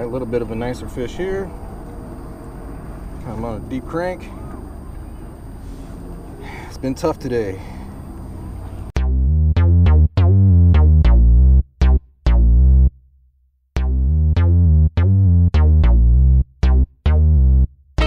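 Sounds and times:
deep bass: 8.9 - 13.1, 13.8 - 18.0
synthesizer notes: 9.0 - 12.9, 13.8 - 17.7.

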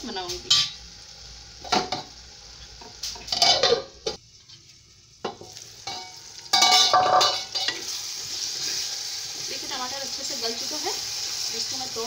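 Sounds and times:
food sizzling in a pan: 0.0 - 12.0
glass lid clattering on pan: 5.3 - 7.8.

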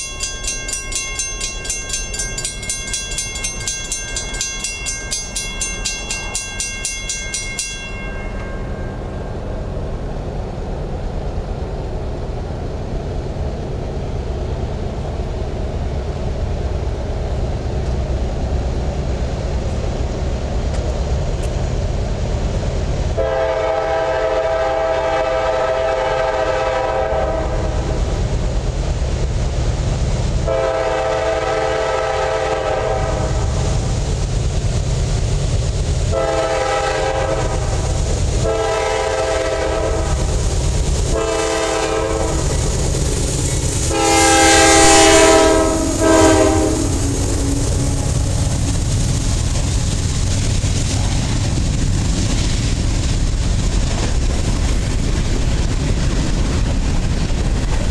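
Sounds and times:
low rumble of train: 0.0 - 57.9
rolling clatter of freight cars: 0.0 - 57.9
locomotive air horn blasts: 23.2 - 27.8, 30.4 - 33.5, 36.1 - 40.3, 41.1 - 42.5, 43.9 - 48.2.

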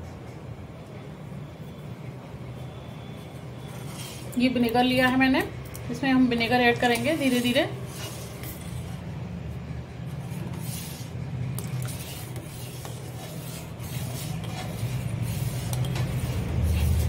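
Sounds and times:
spoon scraping metal pan: 3.6 - 5.1, 6.7 - 9.0, 10.3 - 17.0
spoon stirring milk in a pan: 10.1 - 17.0.

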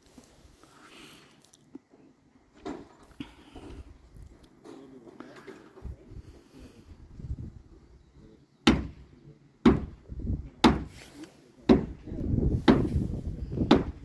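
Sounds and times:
heavy hammer blows on timber: 8.7 - 14.0.

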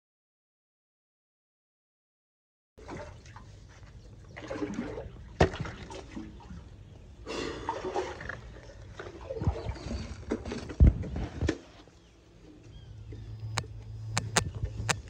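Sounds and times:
water and sludge splashing: 2.8 - 12.0.

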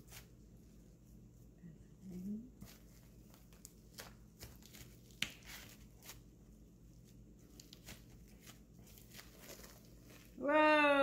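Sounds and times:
sushi mat crinkling: 2.6 - 10.4.

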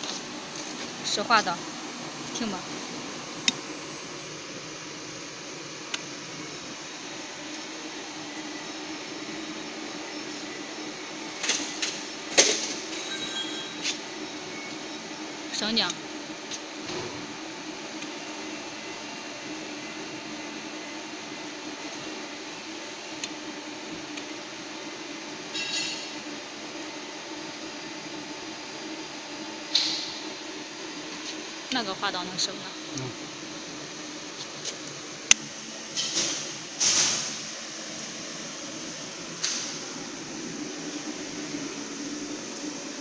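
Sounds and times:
welding hiss: 35.9 - 40.2.

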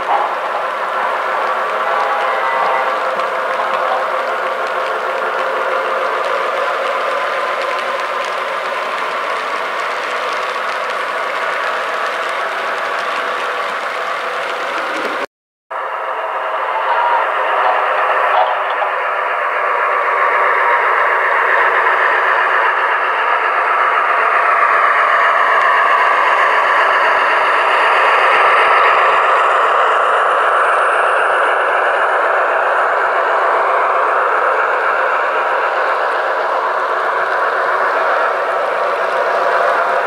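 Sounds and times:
model train running: 0.0 - 40.0.

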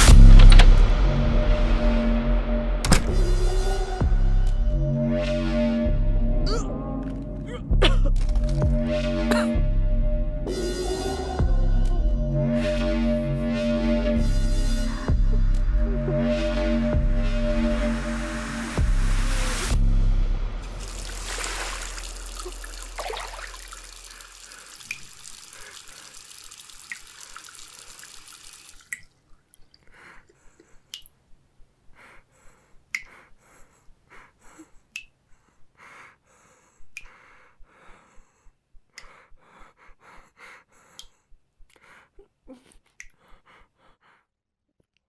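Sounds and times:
water dripping into a sink: 20.7 - 29.9.

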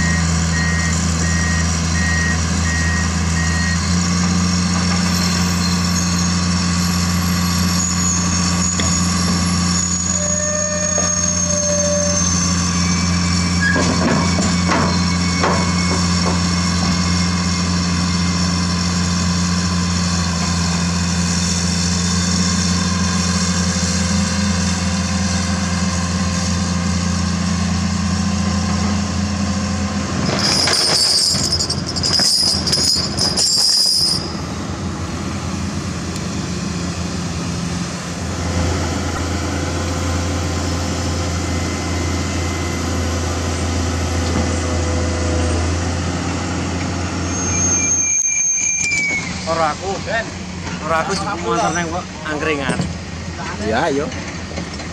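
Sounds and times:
diesel engine idling: 34.3 - 47.2.

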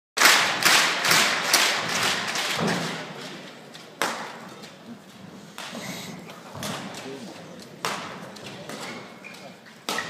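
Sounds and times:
badminton racket hitting shuttlecock: 7.8 - 10.0.

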